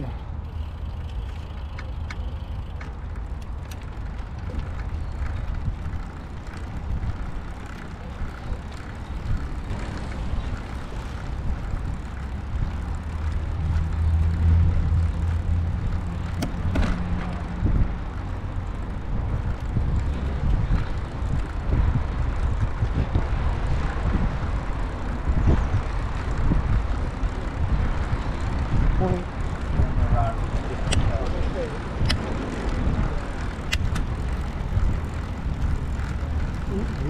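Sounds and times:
tyres rolling on tarmac: 0.0s - 37.0s
wind on microphone: 9.2s - 37.0s.

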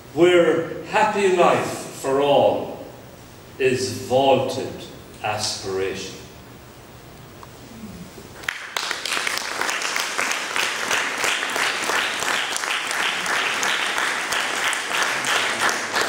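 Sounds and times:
audience applause: 8.4s - 16.0s.

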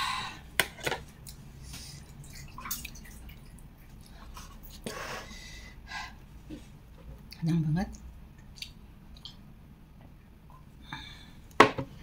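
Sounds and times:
wet mouth eating sounds: 8.4s - 9.4s.

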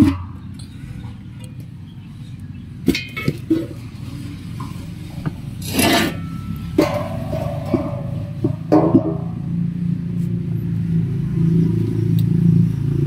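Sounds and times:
dish scraping on concrete: 2.9s - 9.6s.

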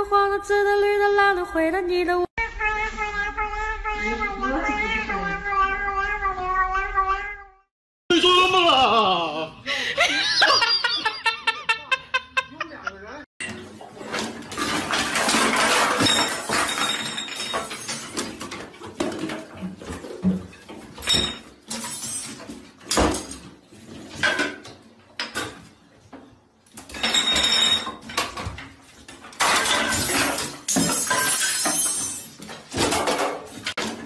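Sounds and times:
objects clattering falling: 13.4s - 24.6s, 26.8s - 34.0s.

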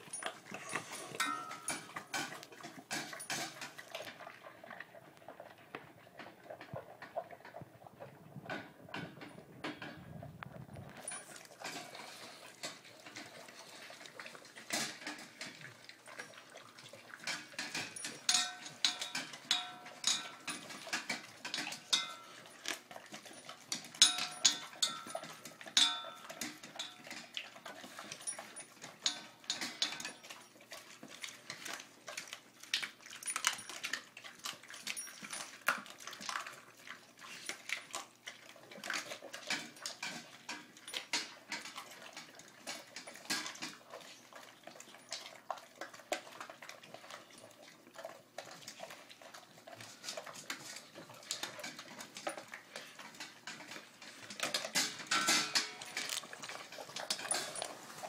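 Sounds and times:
metal bowls clanking: 0.0s - 4.4s, 10.9s - 30.5s, 38.9s - 45.1s, 49.7s - 58.0s
dogs chewing and crunching: 0.0s - 58.0s.

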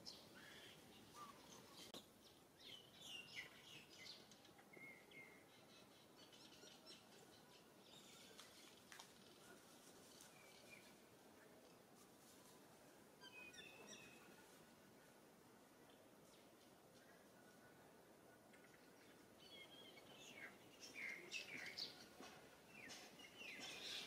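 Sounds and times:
faint bird chirps: 0.0s - 11.0s, 13.2s - 14.6s
outdoor background hiss: 0.0s - 24.0s.

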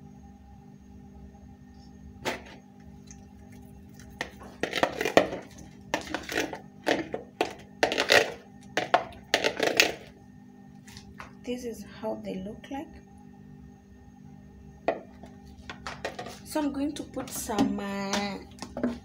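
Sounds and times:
faint steady hum: 0.0s - 19.0s
eggs knocking in plastic bowl: 4.0s - 10.1s, 14.9s - 16.4s, 17.2s - 19.0s.

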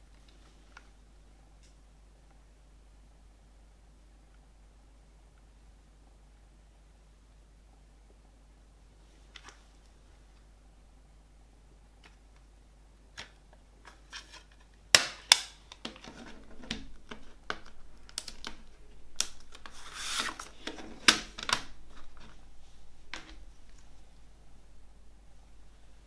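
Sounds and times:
plastic rubbing and rustling: 15.8s - 24.2s.

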